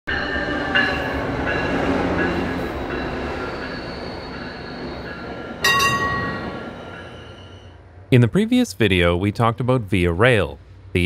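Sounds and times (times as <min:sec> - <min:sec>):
train rumbling past: 0:00.1 - 0:11.0
wheels squealing: 0:00.3 - 0:07.7.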